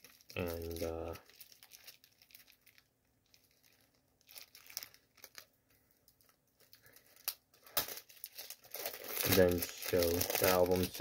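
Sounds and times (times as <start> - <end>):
plastic crackles: 0.0 - 11.0
plastic wrap crinkling and tearing: 0.0 - 11.0.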